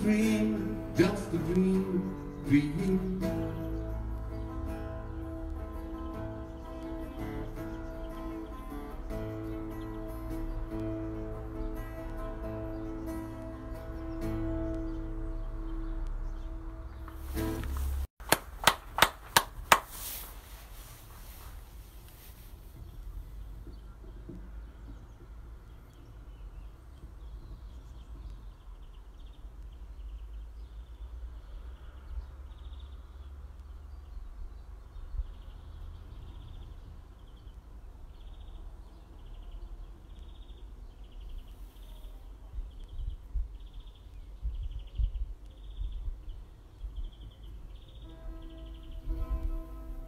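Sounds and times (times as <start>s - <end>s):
songbird calling: 0.0s - 18.0s, 34.9s - 50.0s.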